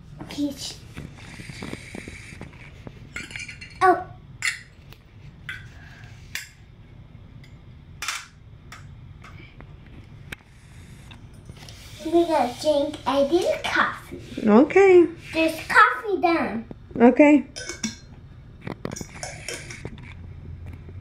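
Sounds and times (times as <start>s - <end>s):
metal toy teacups clinking: 17.5s - 18.1s.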